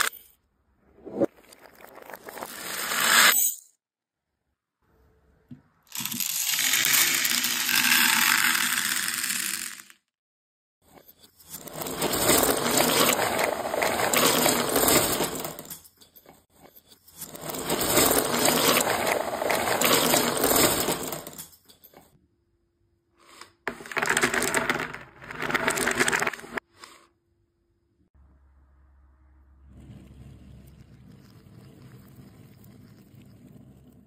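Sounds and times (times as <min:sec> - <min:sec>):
puzzle pieces clattering on table: 0:05.9 - 0:10.0, 0:11.1 - 0:16.4, 0:17.1 - 0:22.1, 0:23.7 - 0:26.6.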